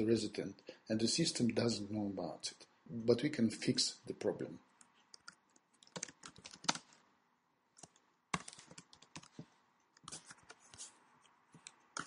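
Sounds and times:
keyboard typing: 4.8s - 7.0s, 7.7s - 10.8s.

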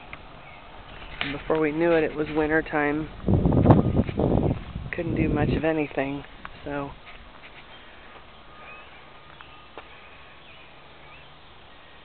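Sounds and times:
faint bird chirps: 7.5s - 12.0s.

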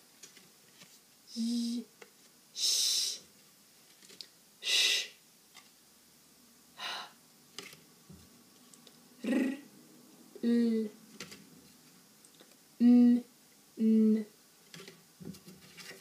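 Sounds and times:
woman voicing consonant sounds: 1.3s - 1.9s, 9.2s - 9.7s, 10.4s - 11.0s, 12.8s - 14.4s.

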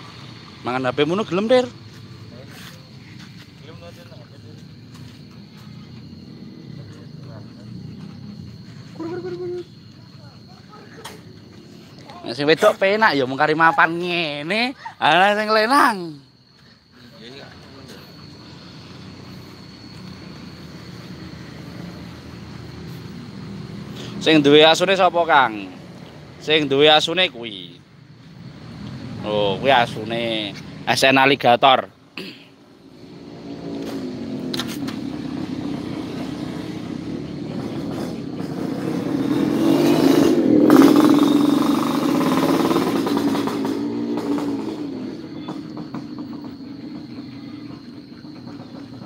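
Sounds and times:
vehicle engine running: 17.5s - 24.1s, 40.7s - 49.0s.

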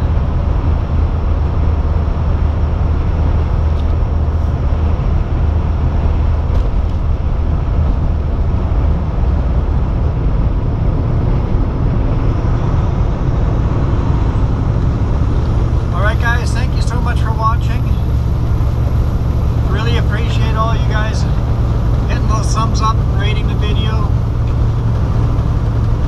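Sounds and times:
road and tyre noise: 0.0s - 26.0s
truck engine drone: 0.0s - 26.0s.

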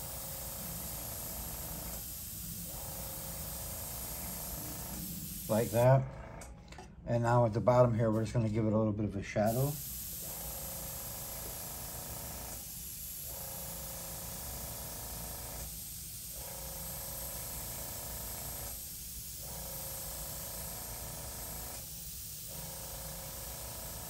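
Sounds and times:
airbrush spraying air hiss: 0.0s - 5.8s, 9.5s - 24.0s.

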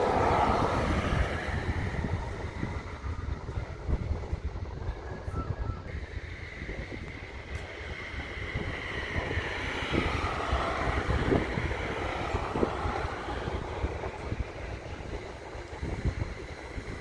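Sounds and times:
vehicle driving past: 0.0s - 3.5s, 7.8s - 16.2s
wind buffeting microphone: 0.0s - 17.0s.

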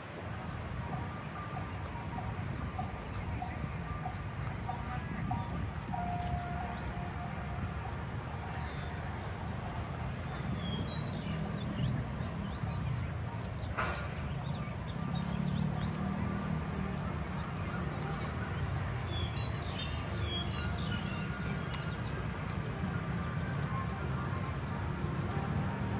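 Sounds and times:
low rumble of city traffic: 0.0s - 25.9s
birds chirping and whistling: 4.7s - 22.2s.

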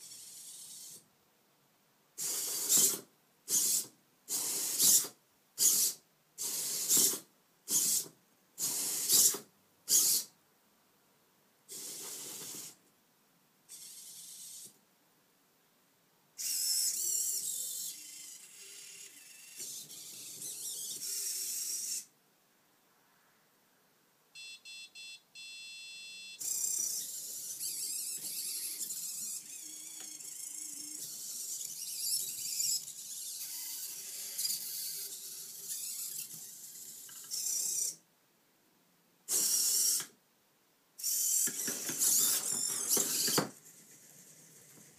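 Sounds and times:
servo motors whirring: 2.2s - 10.3s, 16.4s - 22.1s, 26.4s - 38.0s, 39.3s - 40.1s, 41.0s - 44.8s
short electronic beeps: 24.4s - 26.5s.

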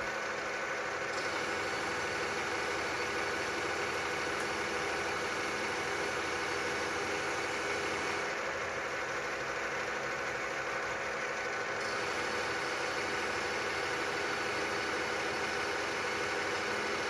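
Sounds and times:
machine whine: 11.2s - 17.0s
lathe cutting metal: 11.6s - 17.0s.

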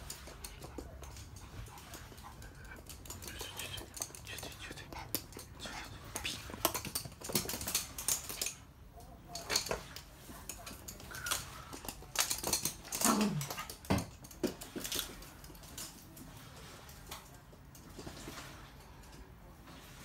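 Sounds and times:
dog claws clicking on hard floor: 0.0s - 8.7s, 9.3s - 16.2s.

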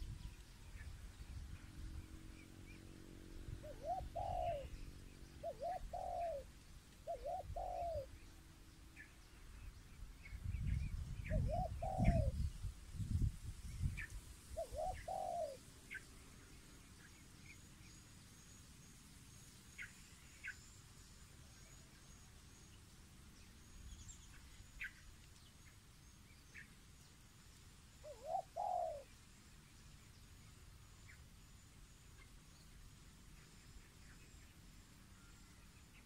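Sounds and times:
small birds chirping: 0.0s - 18.8s, 21.6s - 36.0s
dove cooing: 3.6s - 4.7s, 5.4s - 8.1s, 11.3s - 12.4s, 14.6s - 15.6s, 28.0s - 29.1s.

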